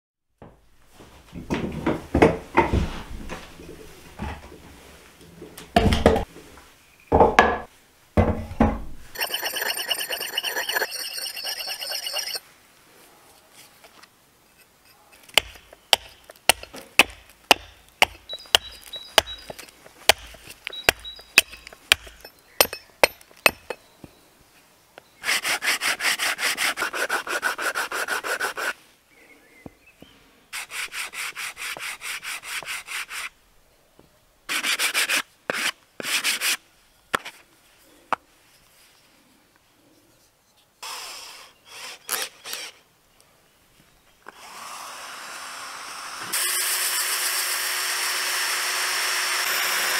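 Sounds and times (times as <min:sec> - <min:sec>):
rasping strokes across wood: 0:09.1 - 0:12.4, 0:17.5 - 0:23.8, 0:25.2 - 0:28.8, 0:30.6 - 0:33.3.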